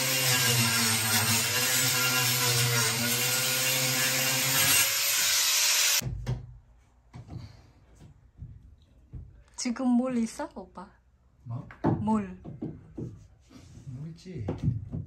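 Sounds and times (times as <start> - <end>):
angle grinder cutting wood: 0.0 - 6.0.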